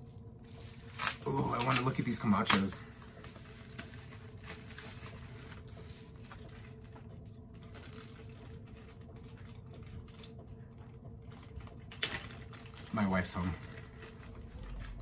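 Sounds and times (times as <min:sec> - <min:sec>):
faint steady hum: 0:00.0 - 0:15.0
packaging rustling: 0:00.4 - 0:10.4, 0:11.3 - 0:15.0.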